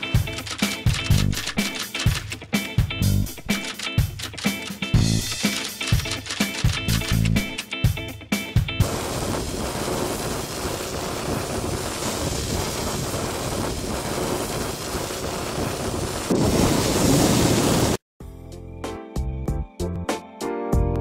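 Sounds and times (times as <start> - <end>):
steady rushing noise: 8.8 - 18.0.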